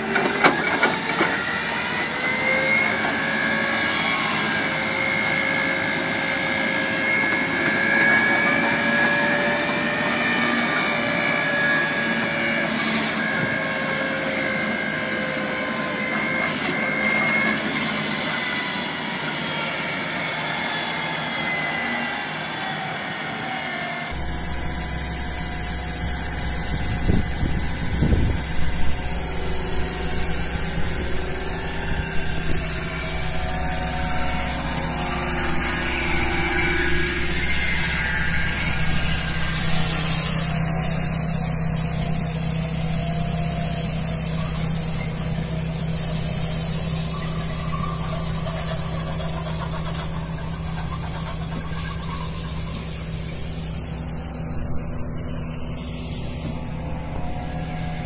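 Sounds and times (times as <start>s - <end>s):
excavator diesel engine: 0.0s - 58.0s
flail mower whine: 0.0s - 58.0s
machine rumbling: 24.1s - 58.0s.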